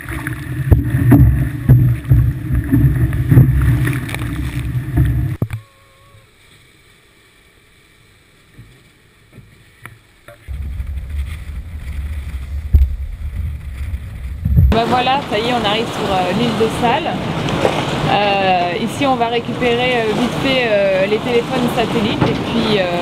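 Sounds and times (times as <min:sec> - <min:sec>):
water rushing against hulls: 0:00.0 - 0:23.0
wind buffeting microphone: 0:10.5 - 0:23.0.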